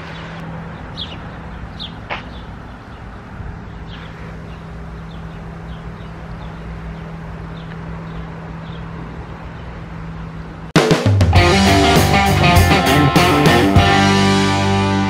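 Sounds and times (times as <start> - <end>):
high bird chirps: 0.1 - 3.1.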